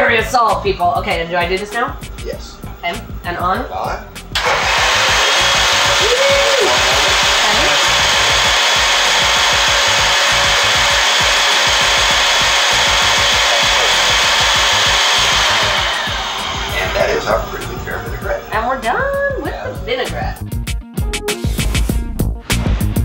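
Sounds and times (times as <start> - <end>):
blender whirring: 4.3 - 19.8.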